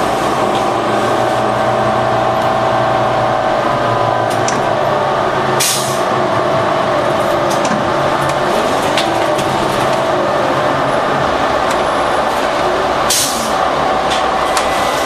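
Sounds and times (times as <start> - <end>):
diesel bus engine rumble: 0.0 - 15.0
air brake hiss: 5.6 - 6.0, 13.1 - 13.6.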